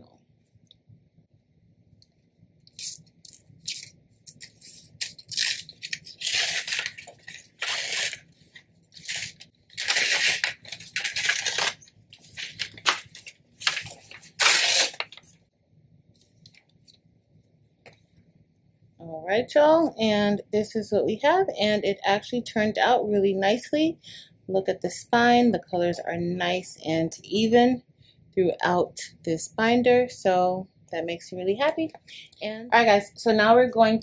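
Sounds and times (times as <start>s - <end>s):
paper rustling and crinkling: 3.7s - 15.4s.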